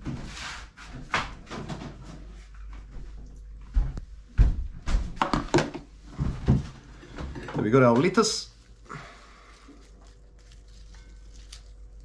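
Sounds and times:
plastic containers clattering: 5.2s - 8.3s.

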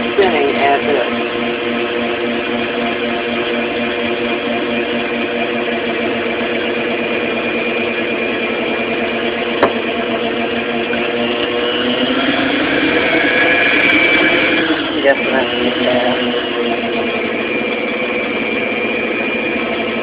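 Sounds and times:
stand mixer motor running: 0.0s - 20.0s.

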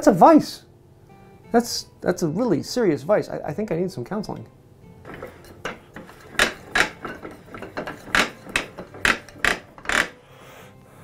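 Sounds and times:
vise screw clacking: 5.1s - 10.2s.

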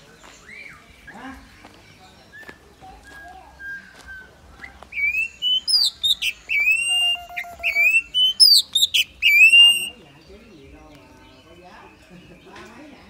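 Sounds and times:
starling whistling: 3.1s - 10.0s.

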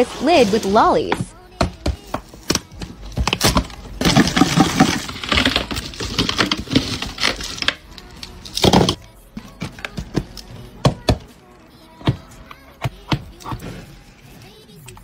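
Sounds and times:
wrapped lollipops rustling: 2.2s - 10.5s.

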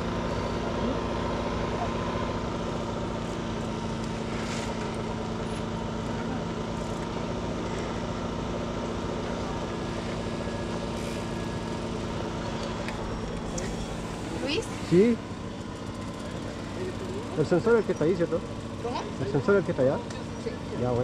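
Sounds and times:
motor humming: 9.5s - 20.3s.

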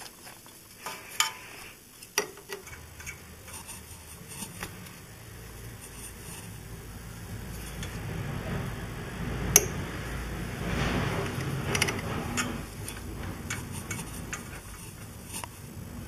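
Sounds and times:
oil filter clicking and rubbing: 2.0s - 6.6s, 10.7s - 15.7s.

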